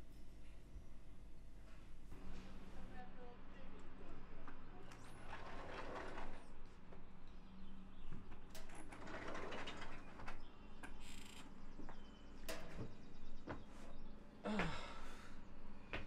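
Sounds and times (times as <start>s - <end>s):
sliding glass door shutting: 5.2s - 6.5s, 8.6s - 10.4s.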